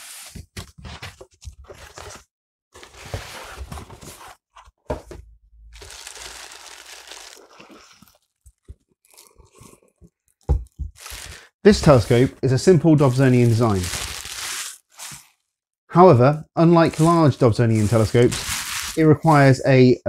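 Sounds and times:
cardboard scraping and knocking: 0:02.8 - 0:05.3
plastic wrapping rustling: 0:05.8 - 0:09.0, 0:10.9 - 0:12.3, 0:13.0 - 0:15.5, 0:16.9 - 0:19.6.

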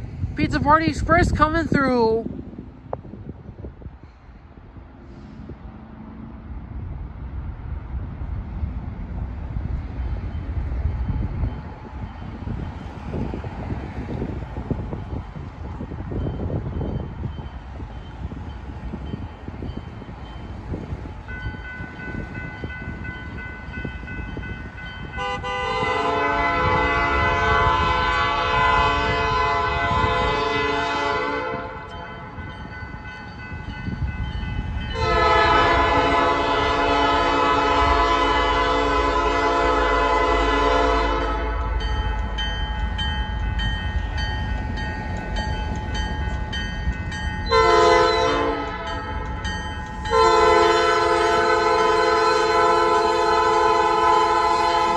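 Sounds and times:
crossing signal bell ringing: 0:16.1 - 0:25.8, 0:31.8 - 0:37.0, 0:40.5 - 0:54.9
locomotive air horn blasts: 0:25.2 - 0:32.0, 0:34.9 - 0:41.7, 0:47.5 - 0:49.0, 0:50.1 - 0:54.9.

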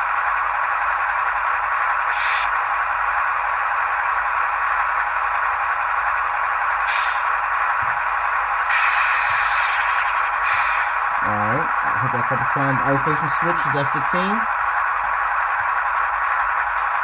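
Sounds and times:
short sharp air blasts: 0:02.1 - 0:02.6, 0:06.8 - 0:07.4, 0:08.7 - 0:11.0.

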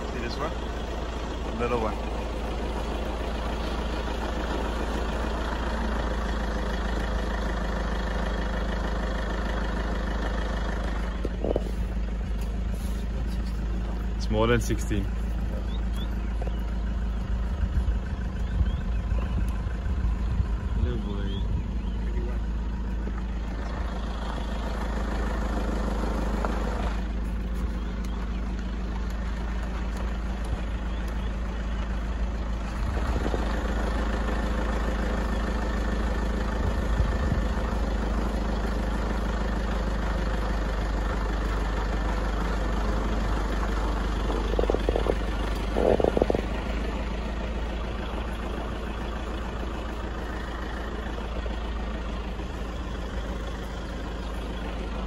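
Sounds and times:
vehicle engine idling: 0:00.0 - 0:55.0.

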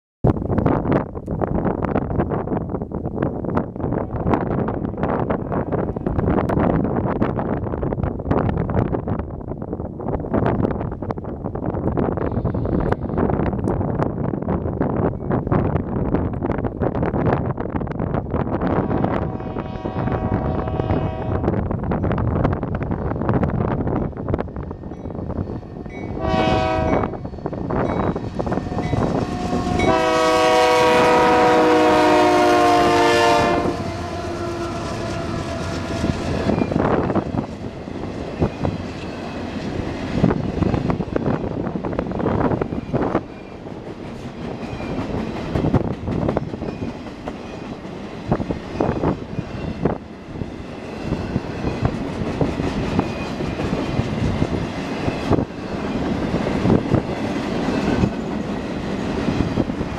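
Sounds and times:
locomotive air horn: 0:18.8 - 0:21.5, 0:26.2 - 0:27.2, 0:28.5 - 0:36.5
train wheels clattering over rails: 0:34.7 - 0:50.0.

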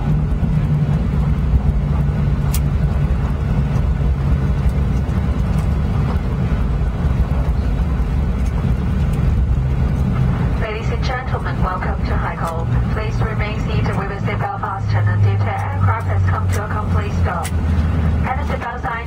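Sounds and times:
airplane cabin low rumble: 0:00.0 - 0:19.0
engine hum: 0:00.0 - 0:19.0.

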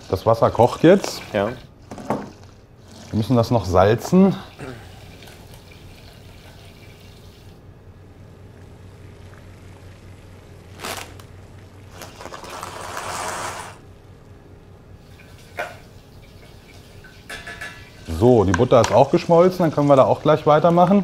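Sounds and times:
boiling water bubbling: 0:00.0 - 0:10.7, 0:14.9 - 0:21.0
dry pasta pouring into pot: 0:11.9 - 0:13.8.

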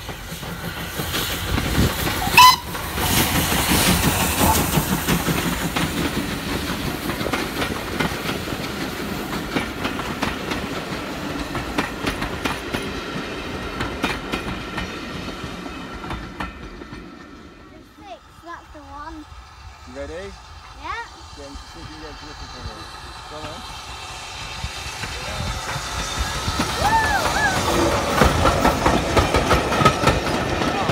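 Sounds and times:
train wheels clattering over rails: 0:00.0 - 0:17.8, 0:21.8 - 0:30.9
locomotive rumble: 0:00.0 - 0:30.9
locomotive whistle blast: 0:02.2 - 0:02.8.

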